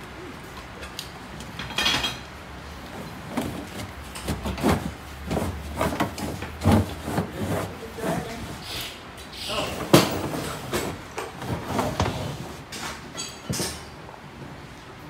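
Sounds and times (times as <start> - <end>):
metal tools knocking and clattering: 1.5 - 2.3, 13.1 - 14.0.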